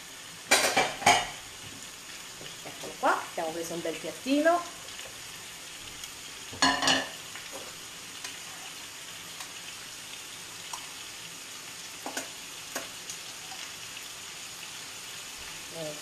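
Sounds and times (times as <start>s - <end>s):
food sizzling in a pan: 0.0s - 16.0s
fork clinking on skillet: 6.6s - 7.2s.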